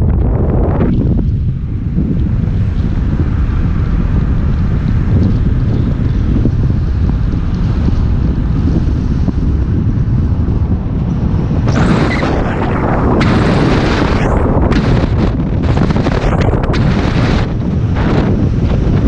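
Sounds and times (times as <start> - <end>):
low road rumble: 0.0 - 19.0
wind buffeting microphone: 0.0 - 19.0.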